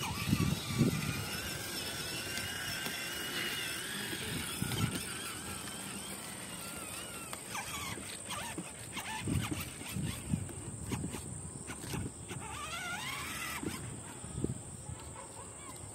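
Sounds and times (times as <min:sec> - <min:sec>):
toy motorcycle electric motor whine: 0:00.0 - 0:15.9.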